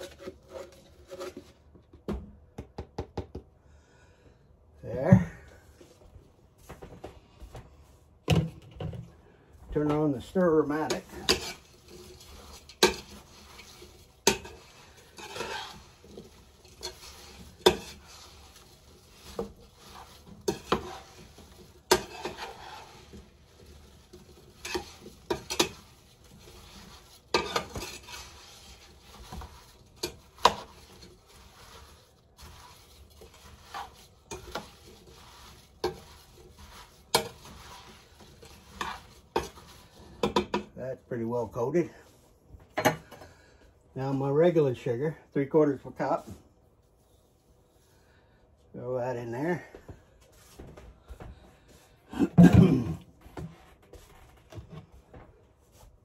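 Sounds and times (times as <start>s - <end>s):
spoon knocking and scraping pot: 10.8s - 40.7s.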